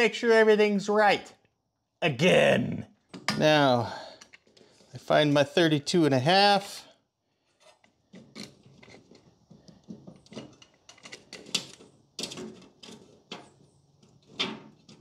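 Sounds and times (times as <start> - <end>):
steel part being handled: 7.6 - 15.0.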